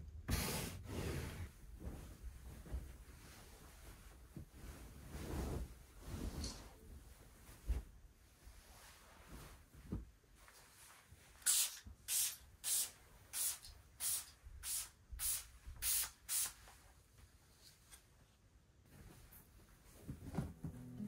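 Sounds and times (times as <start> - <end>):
spray bottle hissing sprays: 11.4 - 16.6.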